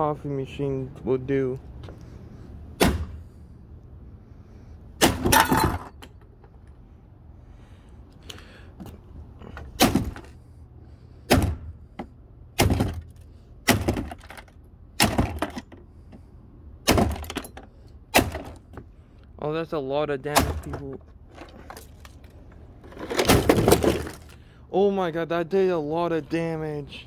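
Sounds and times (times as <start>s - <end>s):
coffee machine casing smashed: 23.1s - 24.3s.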